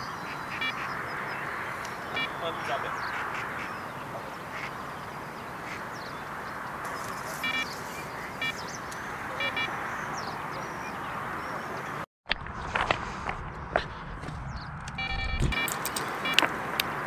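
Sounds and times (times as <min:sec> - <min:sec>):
faint bird chirps: 0:00.0 - 0:06.3, 0:06.9 - 0:12.0
duck quacking: 0:00.2 - 0:04.8, 0:05.6 - 0:05.9, 0:07.2 - 0:09.8.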